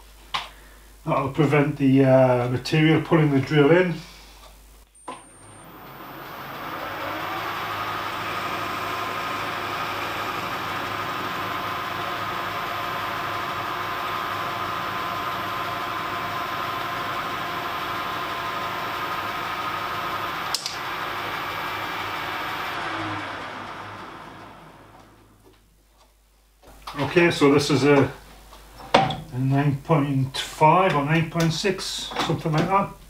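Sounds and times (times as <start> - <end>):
metal lathe whining and humming: 5.2 - 25.3
sharp click: 20.5 - 20.8.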